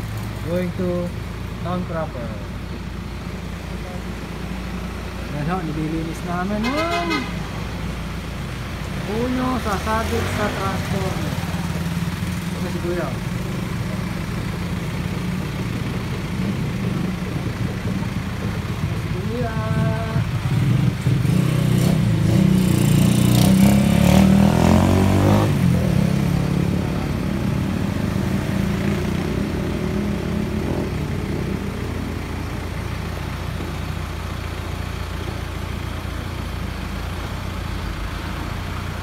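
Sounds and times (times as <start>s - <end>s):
truck engine running steadily: 0.0s - 21.4s, 30.4s - 39.0s
engine revving: 8.9s - 33.6s.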